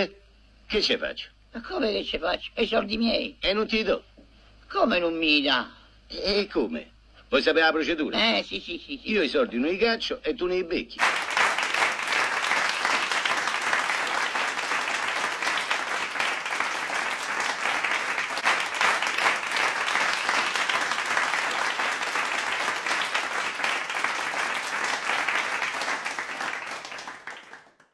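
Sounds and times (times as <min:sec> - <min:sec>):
crowd applauding: 0:11.0 - 0:27.9.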